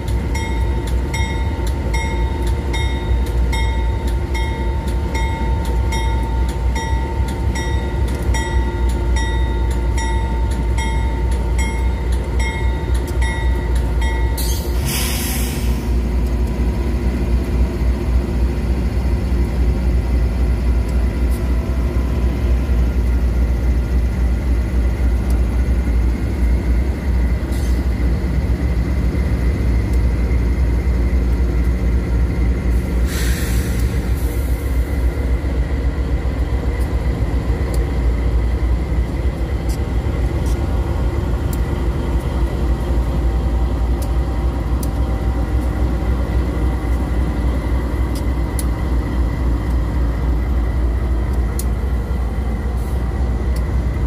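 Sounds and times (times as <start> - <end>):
locomotive engine rumble: 0.0 - 54.0
loud hiss: 14.4 - 16.0, 32.8 - 35.0.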